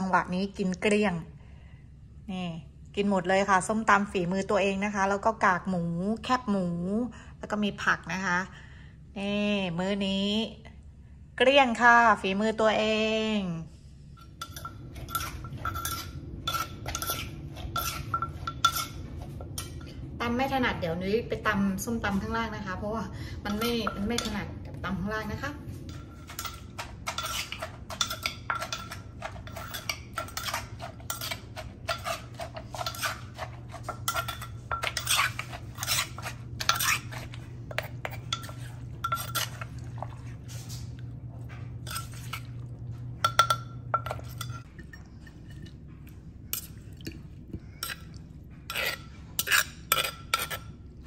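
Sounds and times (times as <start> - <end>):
low steady hum: 0.0 - 51.0
spoon clinking and scraping: 14.2 - 20.0, 23.5 - 24.4, 25.9 - 40.9, 41.8 - 42.6, 43.2 - 45.8, 47.8 - 50.8.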